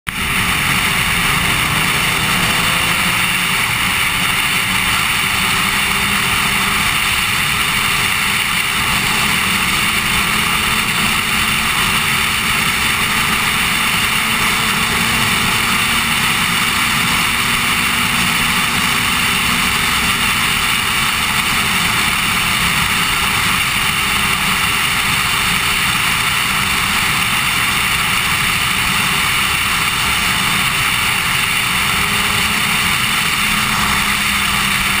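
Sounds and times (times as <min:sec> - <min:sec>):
faint motorcycle engine: 0:00.1 - 0:35.0.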